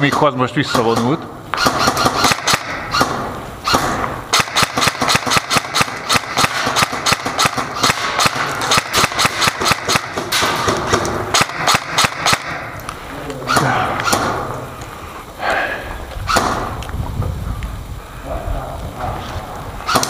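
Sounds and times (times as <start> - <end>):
airsoft guns firing: 0.0 - 12.8, 13.4 - 14.7, 16.3 - 16.8.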